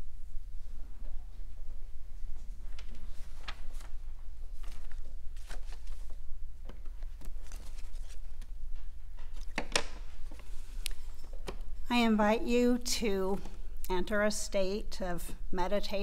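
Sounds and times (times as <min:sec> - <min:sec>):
low room hum: 0:00.0 - 0:16.0
faint clicks and rustles: 0:00.7 - 0:11.9.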